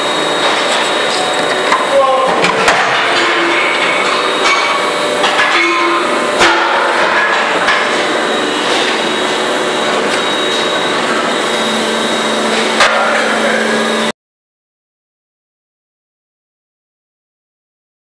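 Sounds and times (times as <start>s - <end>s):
factory machinery noise: 0.0s - 14.1s.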